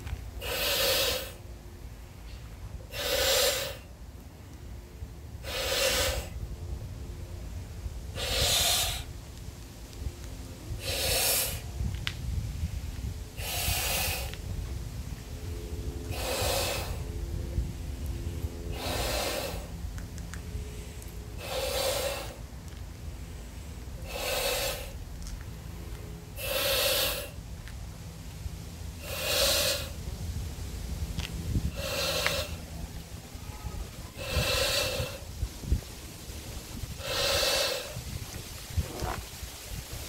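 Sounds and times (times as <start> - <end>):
man blowing into a balloon: 0.4 - 1.4, 2.9 - 3.9, 5.4 - 6.4, 8.1 - 9.1, 10.8 - 11.7, 13.3 - 14.4, 16.1 - 17.1, 18.7 - 19.7, 21.4 - 22.4, 23.4 - 25.0, 26.3 - 27.4, 29.0 - 30.0, 31.5 - 32.6, 33.4 - 35.8, 36.8 - 40.0
man breathing in with a hiss: 0.4 - 1.5, 2.2 - 3.9, 5.4 - 6.4, 8.1 - 9.1, 10.7 - 11.8, 13.3 - 14.4, 15.9 - 17.2, 18.1 - 19.8, 20.5 - 25.1, 26.2 - 27.4, 29.0 - 30.0, 31.5 - 32.8, 34.0 - 39.9.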